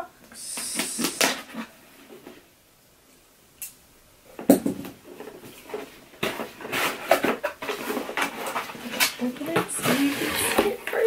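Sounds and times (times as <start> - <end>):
cardboard flaps rustling: 5.1 - 11.0.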